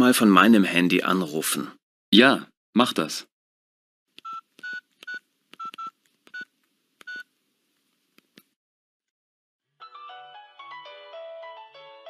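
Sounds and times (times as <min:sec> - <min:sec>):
phone keypad beeps: 0:04.2 - 0:07.3.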